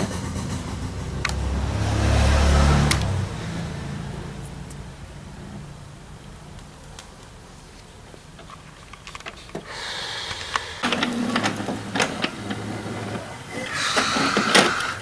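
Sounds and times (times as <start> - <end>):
printer mechanism clicking: 8.3 - 15.0
printer motor whirring: 8.4 - 15.0.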